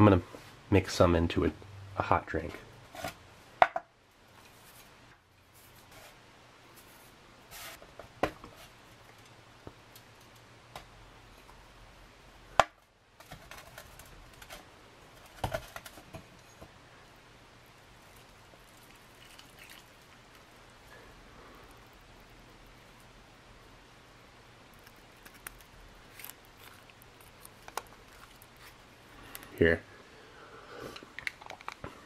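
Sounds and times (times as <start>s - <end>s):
hands crumbling chocolate: 18.0s - 21.0s, 24.8s - 29.5s.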